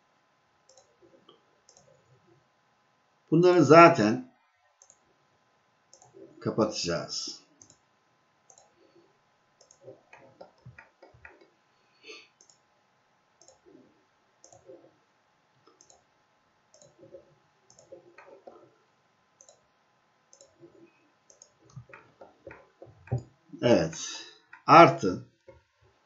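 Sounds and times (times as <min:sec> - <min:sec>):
faint computer mouse clicks: 0:00.7 - 0:00.9, 0:01.7 - 0:01.9, 0:04.8 - 0:05.0, 0:07.6 - 0:07.8, 0:08.5 - 0:08.7, 0:09.6 - 0:11.5, 0:12.4 - 0:12.6, 0:13.4 - 0:13.6, 0:14.4 - 0:14.7, 0:15.7 - 0:16.0, 0:16.7 - 0:18.5, 0:19.4 - 0:19.6, 0:20.3 - 0:20.6, 0:21.3 - 0:23.2.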